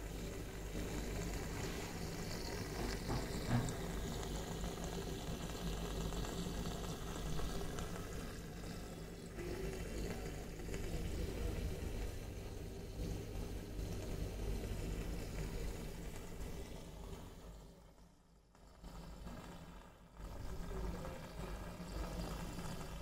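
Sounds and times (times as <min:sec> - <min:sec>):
air bubbles in water: 0:00.0 - 0:17.9, 0:18.6 - 0:23.0
low electrical pump hum: 0:00.0 - 0:23.0
brief knock: 0:02.8 - 0:03.8.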